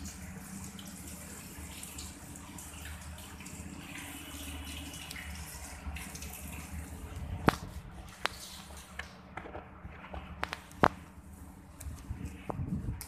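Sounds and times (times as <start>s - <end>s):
ceiling fan running: 0.0s - 13.0s.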